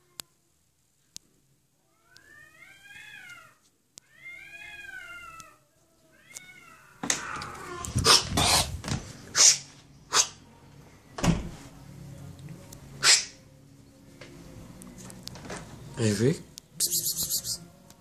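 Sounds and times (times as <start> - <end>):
cat yowling: 1.9 - 8.7.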